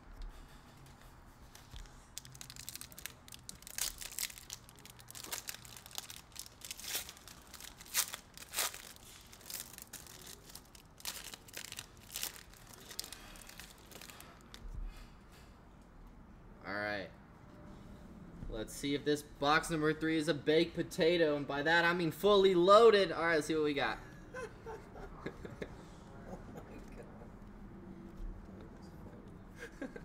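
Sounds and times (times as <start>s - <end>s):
foil wrappers crinkling and tearing: 1.5s - 14.6s.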